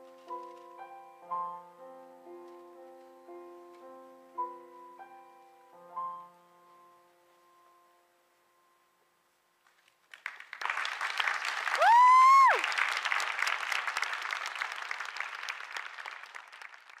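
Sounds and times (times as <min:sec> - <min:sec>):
audience applause: 0:10.1 - 0:17.0
person cheering loudly: 0:11.8 - 0:12.6.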